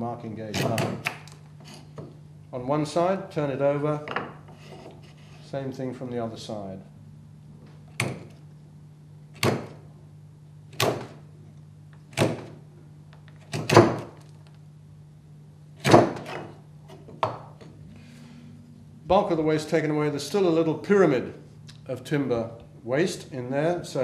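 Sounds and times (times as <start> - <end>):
wood chisel cutting timber: 13.4 - 14.1.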